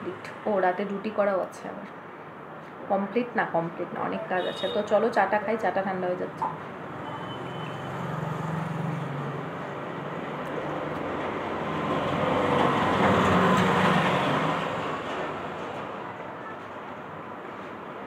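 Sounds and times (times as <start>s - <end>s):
vehicle passing by: 6.8s - 16.0s.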